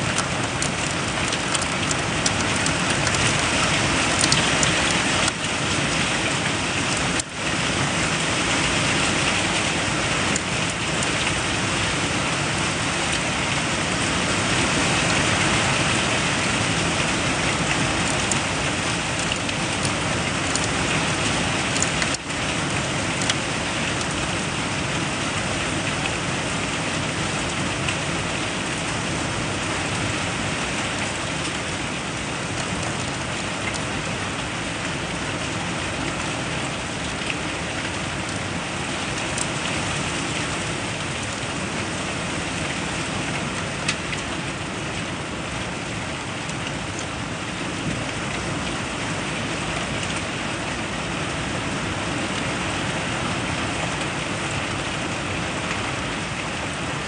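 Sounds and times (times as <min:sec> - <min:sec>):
rain spattering on window glass: 0:00.0 - 0:57.0.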